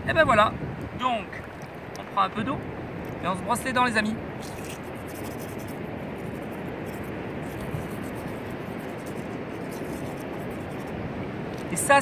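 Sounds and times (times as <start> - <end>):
wind and surf hiss: 0.0 - 12.0
toothbrush scrubbing teeth: 4.4 - 10.9.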